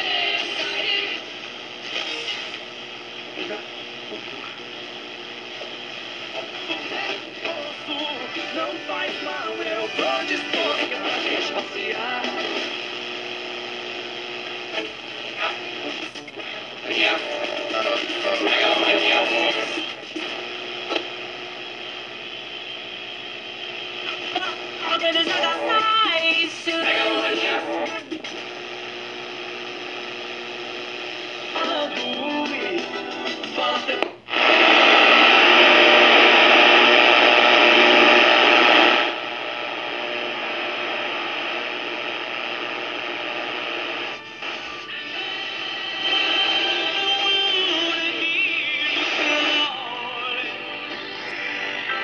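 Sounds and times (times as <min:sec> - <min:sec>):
radio music: 0:00.0 - 0:52.0
radio static hiss: 0:00.0 - 0:52.0.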